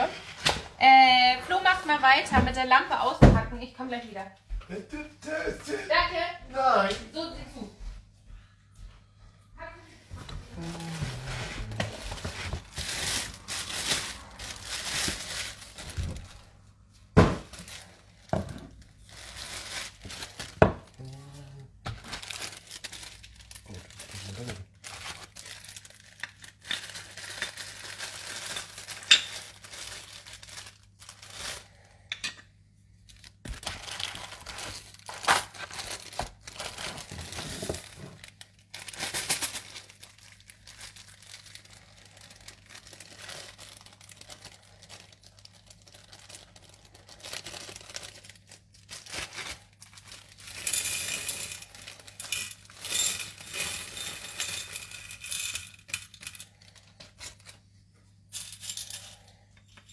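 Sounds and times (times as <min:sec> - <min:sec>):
plastic packaging crinkling: 0:10.6 - 0:32.0, 0:33.0 - 0:58.4.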